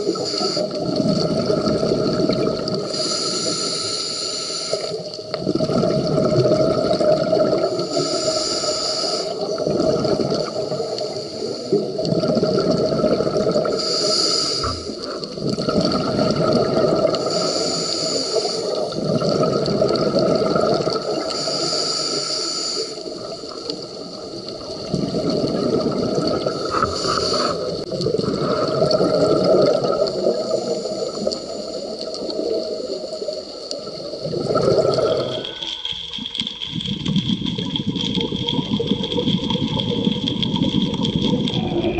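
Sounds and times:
regulator inhalation hiss: 0.0s - 0.8s, 2.8s - 5.1s, 7.8s - 9.6s, 10.4s - 11.9s, 13.7s - 15.2s, 17.1s - 19.0s, 21.0s - 23.8s, 26.6s - 27.8s, 30.2s - 33.8s
exhaled bubbles gurgling: 0.0s - 41.9s.

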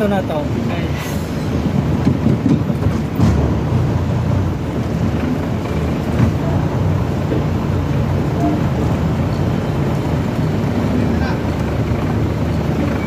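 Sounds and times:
truck engine low rumble: 0.0s - 13.0s.

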